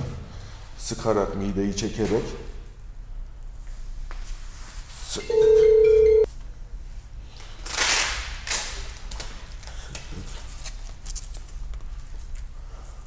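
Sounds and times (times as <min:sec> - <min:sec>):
hook-and-loop tearing apart: 0:07.6 - 0:09.4.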